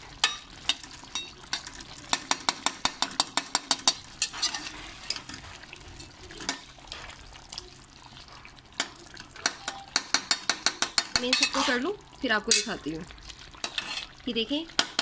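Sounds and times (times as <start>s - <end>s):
soft sizzle: 0.0s - 15.0s
metal spoon scraping steel pot: 4.2s - 5.3s, 11.2s - 11.9s, 13.6s - 14.2s.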